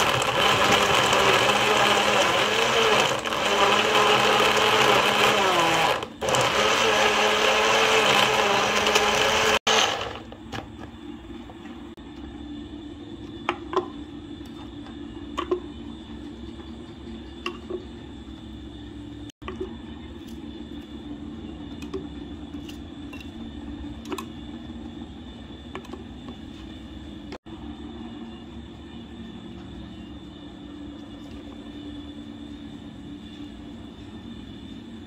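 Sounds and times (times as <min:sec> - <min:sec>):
blender running: 0:00.0 - 0:10.3.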